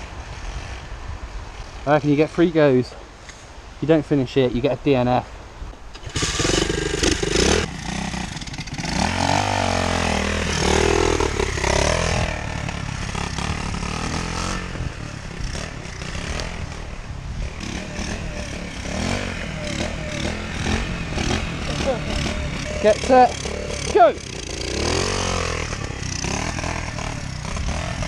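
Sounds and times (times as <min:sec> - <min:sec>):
small motorbike engine revving: 0:05.9 - 0:28.0.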